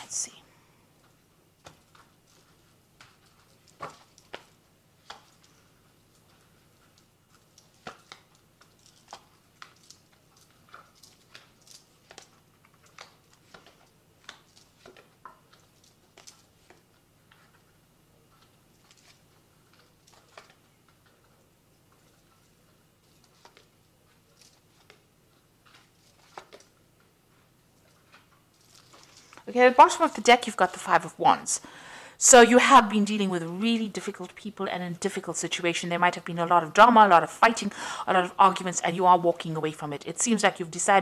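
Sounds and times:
cards shuffled by hand: 6.2s - 17.7s, 21.9s - 26.8s.

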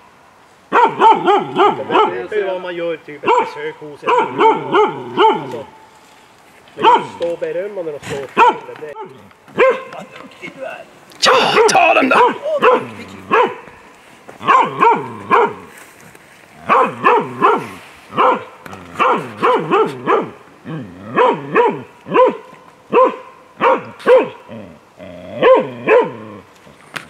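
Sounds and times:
hound barking: 0.7s - 2.3s, 3.2s - 5.6s, 6.8s - 7.2s, 8.4s - 9.9s, 11.2s - 13.7s, 14.4s - 15.7s, 16.6s - 20.4s, 21.1s - 24.5s, 25.4s - 26.3s.

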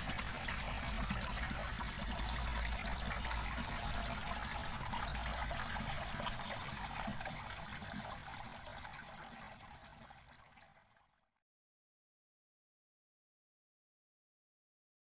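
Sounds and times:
water running through pipes: 0.0s - 11.3s.

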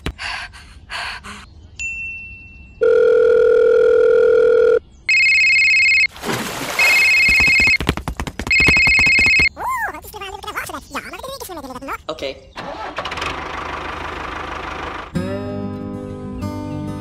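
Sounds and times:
pulsing telephone ringing tone: 2.8s - 6.1s, 6.8s - 7.8s, 8.5s - 9.5s
steady telephone tone: 2.8s - 6.1s, 6.8s - 7.8s, 8.5s - 9.5s.

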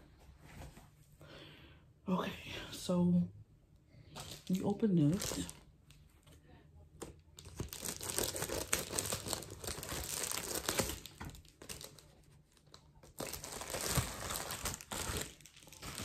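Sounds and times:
plastic mailer crinkling and tearing: 4.1s - 5.6s, 7.4s - 16.0s.

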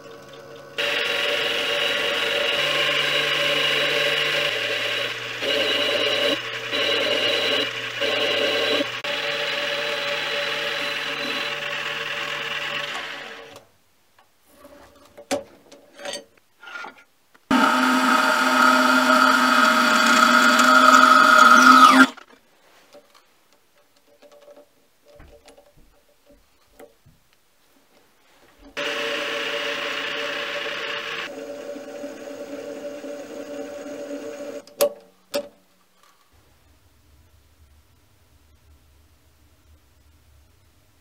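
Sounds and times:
bandsaw cutting metal: 0.8s - 13.6s, 17.5s - 22.2s, 28.8s - 34.6s
lathe whining: 0.8s - 13.6s, 17.5s - 22.2s, 28.8s - 34.7s.

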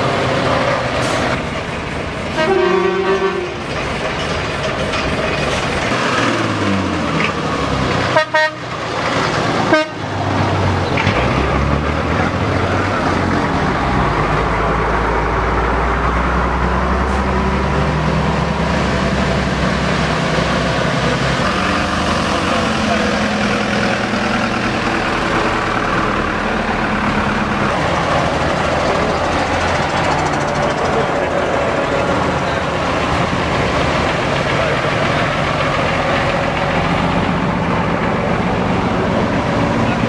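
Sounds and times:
diesel engine rumbling: 0.0s - 40.0s
diesel trucks driving past: 0.0s - 40.0s
truck horn: 2.3s - 3.6s, 8.1s - 8.7s, 9.6s - 10.1s.

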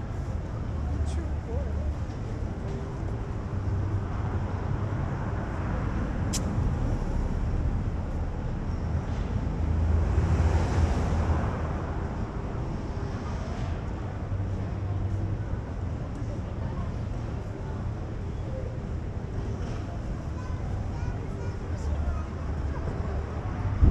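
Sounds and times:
traffic rumble: 0.0s - 23.9s
wind: 0.0s - 23.9s
sharp click: 6.3s - 6.5s.

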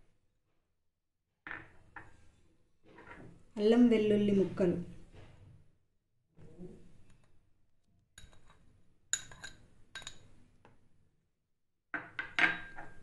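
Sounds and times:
steel spoon clinking on glass bowl: 8.2s - 10.3s.

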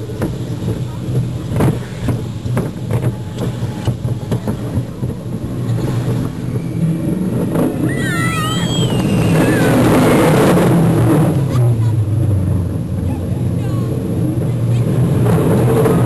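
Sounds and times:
roller coaster rumbling on track: 0.0s - 16.0s
wind noise rush: 0.0s - 16.0s
person screaming: 7.9s - 9.8s.

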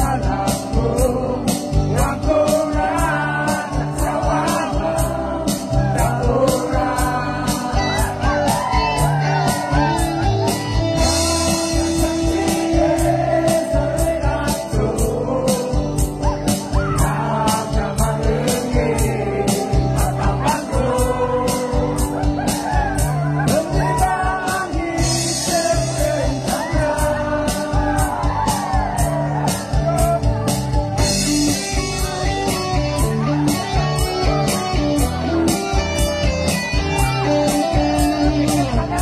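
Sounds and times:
man and woman singing duet: 0.0s - 10.3s, 11.0s - 22.8s, 23.4s - 28.8s
guitar: 0.0s - 39.0s
steady beat: 0.0s - 39.0s.

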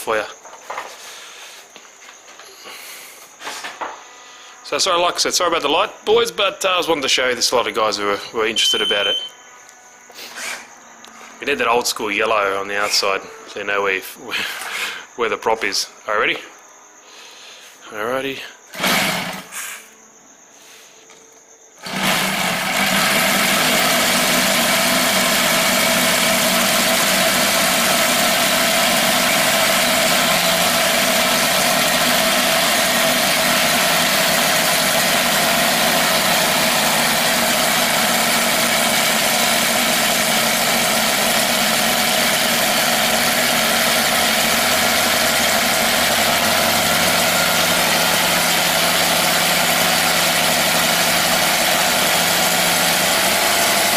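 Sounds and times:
model aircraft engine running: 21.8s - 53.9s.

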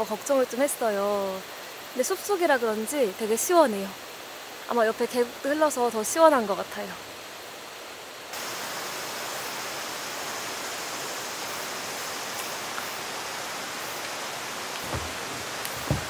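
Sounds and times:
mountain stream rushing: 8.3s - 16.0s.

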